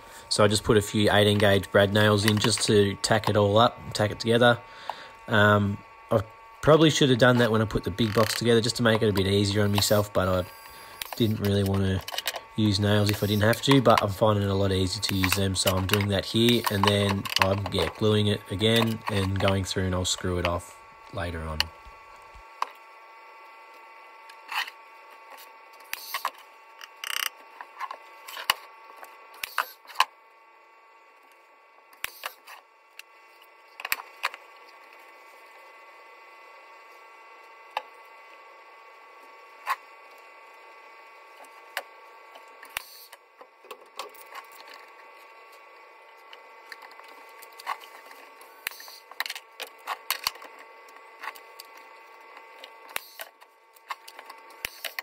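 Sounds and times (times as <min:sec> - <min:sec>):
steady background hum: 0:00.0 - 0:55.0.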